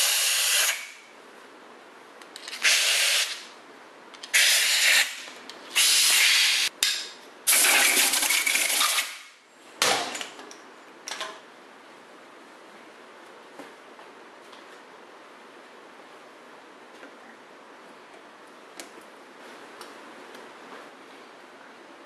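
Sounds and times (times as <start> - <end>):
air blow gun hissing: 0.0 - 1.0, 2.6 - 3.4, 4.3 - 6.7.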